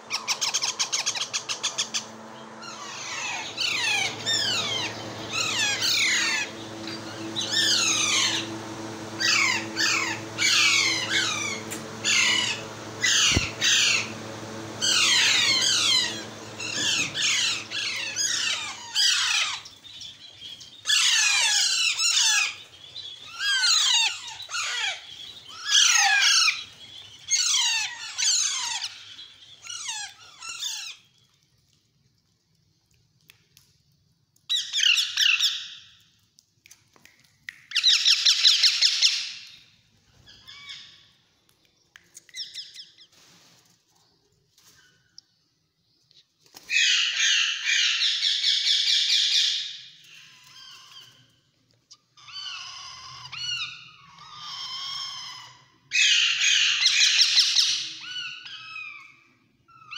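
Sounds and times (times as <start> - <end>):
low steady hum: 0.0 - 25.6
parakeet chicks squawking: 0.0 - 31.1, 37.7 - 39.6, 46.6 - 51.4, 52.2 - 59.9.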